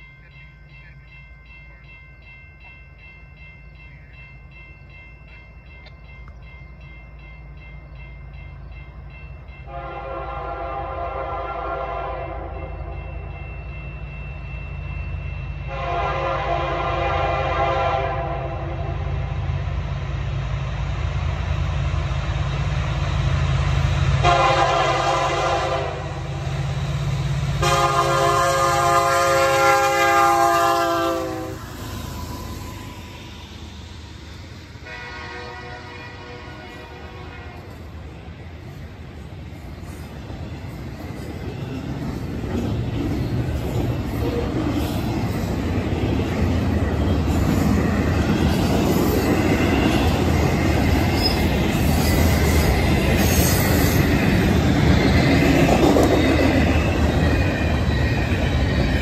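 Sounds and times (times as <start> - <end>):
train air horn blasts: 9.7 - 13.0, 15.7 - 19.2, 24.2 - 26.4, 27.6 - 31.8, 34.8 - 37.7.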